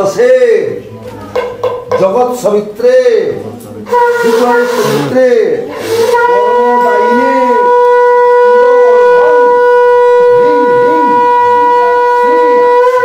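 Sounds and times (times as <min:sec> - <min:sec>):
conch shell blown: 0:03.9 - 0:13.0.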